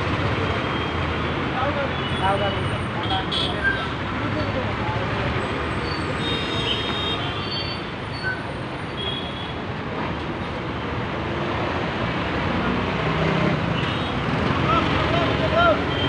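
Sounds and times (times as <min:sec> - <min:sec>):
bus engine rumbling: 0:00.0 - 0:02.0
street traffic: 0:00.0 - 0:16.0.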